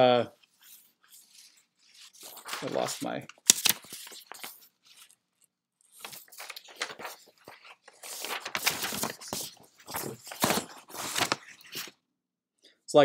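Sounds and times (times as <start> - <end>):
paper sheets rustling: 0.4 - 12.0.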